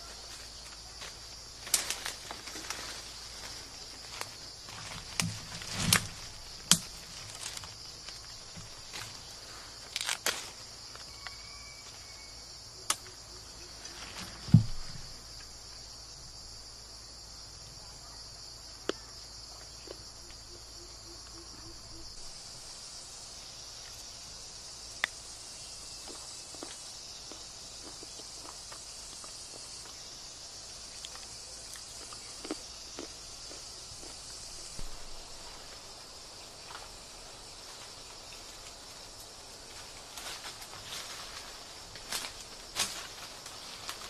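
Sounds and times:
high-pitched insect chorus: 0:00.0 - 0:44.0
low thump: 0:14.4 - 0:15.1, 0:34.7 - 0:35.3.

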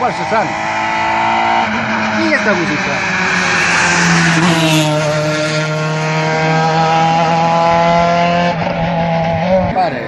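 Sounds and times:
rally car engine passing: 0:00.0 - 0:10.0.

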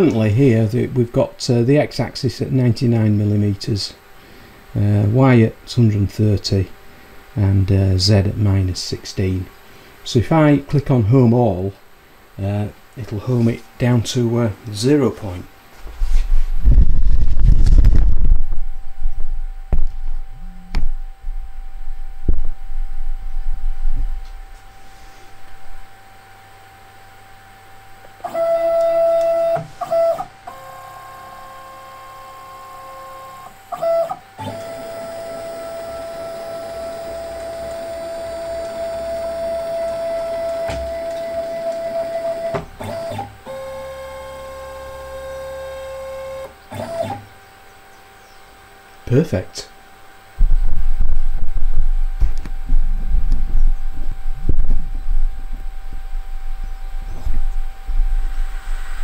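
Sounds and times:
faint steady hum: 0:00.0 - 0:59.0
stepper motors whining: 0:18.8 - 0:24.5, 0:28.0 - 0:48.9, 0:51.2 - 0:59.0.

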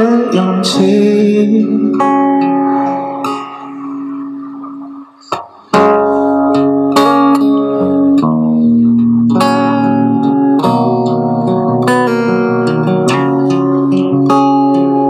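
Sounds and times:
acoustic guitar chords: 0:00.0 - 0:15.0.

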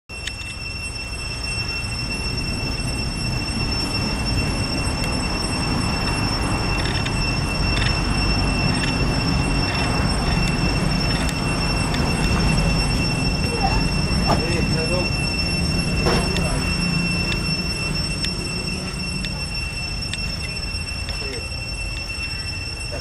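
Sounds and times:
high-pitched whine: 0:00.1 - 0:23.0
steady low rumble: 0:00.1 - 0:23.0.

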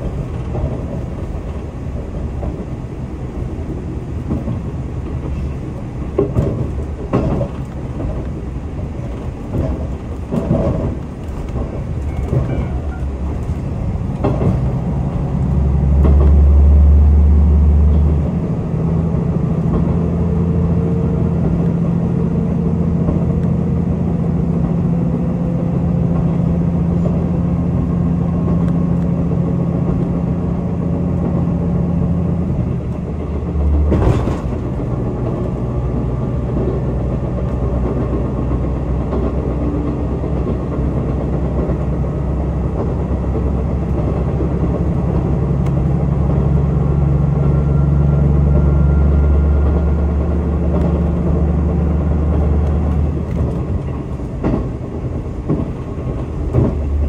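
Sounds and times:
diesel railcar running: 0:00.0 - 0:57.0
low engine drone: 0:00.0 - 0:57.0
train knocks: 0:00.0 - 0:57.0.

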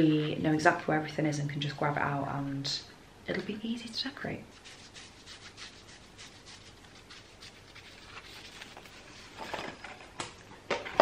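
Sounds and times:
paper decorations rustling: 0:04.5 - 0:10.1.

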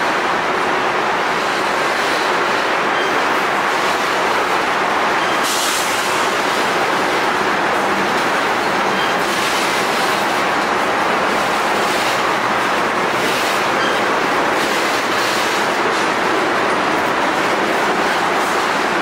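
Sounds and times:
train cars rolling on track: 0:00.0 - 0:19.0.

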